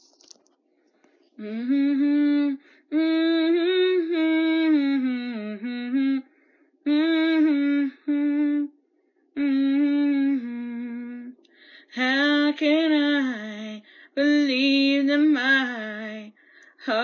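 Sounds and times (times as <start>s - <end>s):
woman humming a slow melody: 1.4s - 6.2s, 6.9s - 8.8s, 9.4s - 11.4s.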